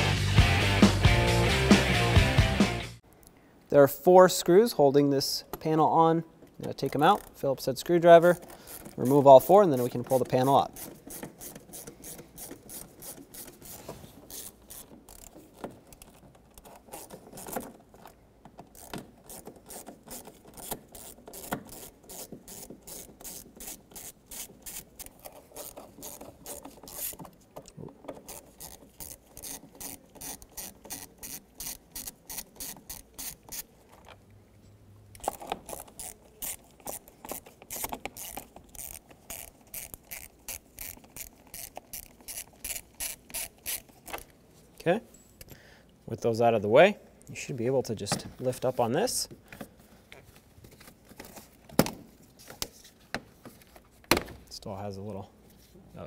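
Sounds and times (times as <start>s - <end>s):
ratcheting screwdriver clicking: 9.8s - 34.1s, 35.2s - 44.3s.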